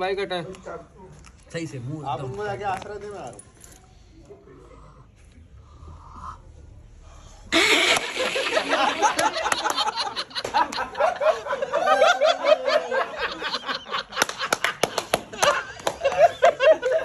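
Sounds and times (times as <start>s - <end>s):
men laughing loudly: 7.5s - 17.0s.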